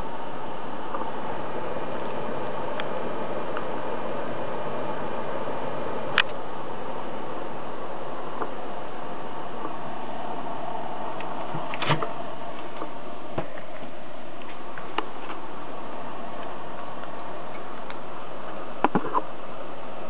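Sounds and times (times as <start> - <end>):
mechanical whirring: 0.0 - 20.0.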